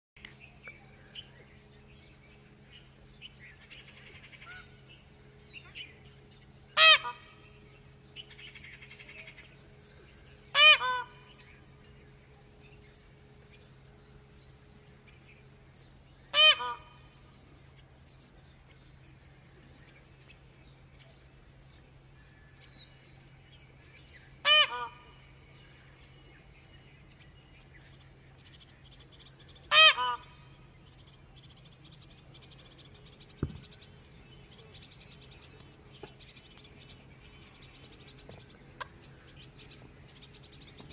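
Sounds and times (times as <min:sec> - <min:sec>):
peafowl alarm call: 0:00.8 - 0:12.9, 0:14.6 - 0:17.8, 0:23.7 - 0:40.9.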